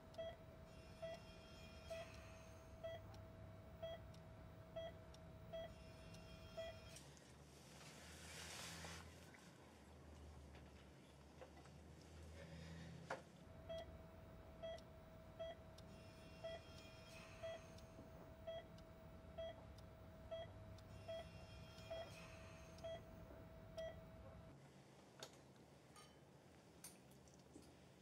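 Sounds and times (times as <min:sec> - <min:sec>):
heart monitor beeping: 0:00.1 - 0:00.4, 0:01.0 - 0:07.0, 0:13.6 - 0:24.3.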